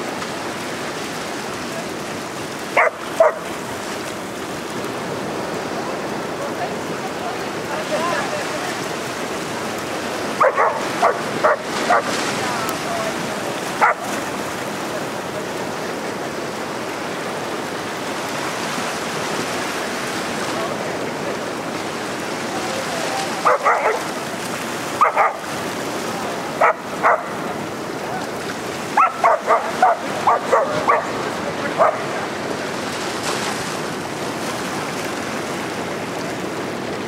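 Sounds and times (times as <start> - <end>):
small waves breaking on beach: 0.0 - 37.0
puppy barking: 2.8 - 3.5, 10.4 - 12.1, 13.8 - 14.1, 23.4 - 24.1, 25.0 - 25.5, 26.6 - 27.4, 29.0 - 31.2, 31.8 - 32.1.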